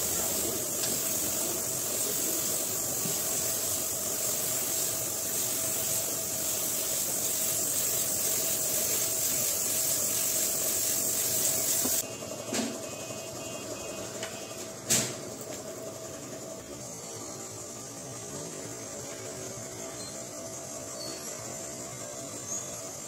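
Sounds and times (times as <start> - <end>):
spray gun hissing: 0.0 - 12.0
steady hum: 0.0 - 23.0.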